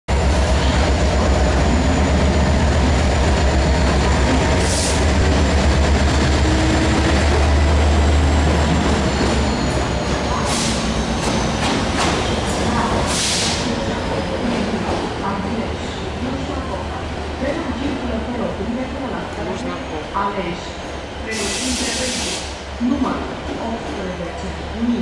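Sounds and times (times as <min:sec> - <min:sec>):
diesel locomotive engine rumble: 0:00.1 - 0:25.0.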